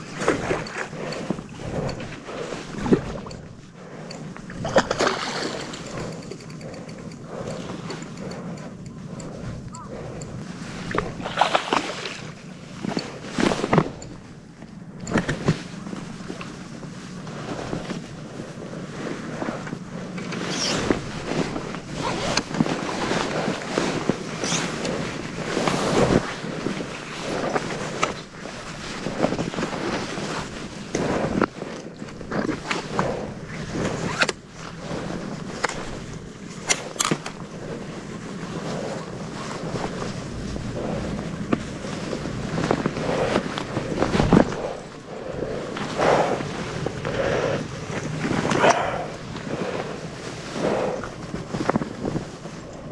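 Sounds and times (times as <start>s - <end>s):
water sloshing: 0.0s - 16.6s
wind on microphone: 0.0s - 52.9s
fishing rod clicks and knocks: 2.8s - 16.5s, 35.5s - 37.5s
fish thrashing and splashing: 4.6s - 7.2s.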